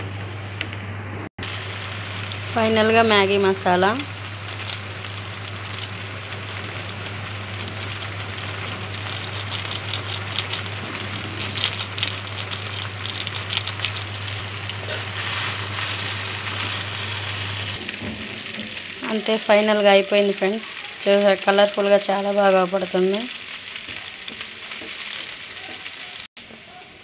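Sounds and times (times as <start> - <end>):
low hum: 0.0 - 20.4
pasta sizzling in a pan: 1.4 - 26.7.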